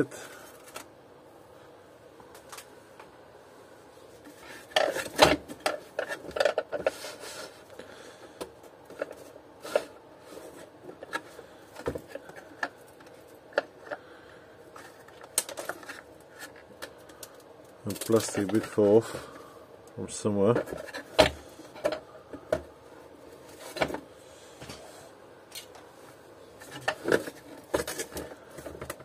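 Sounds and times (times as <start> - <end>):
plastic parts clattering on metal bench: 4.6 - 7.1, 14.8 - 16.6, 17.9 - 19.0.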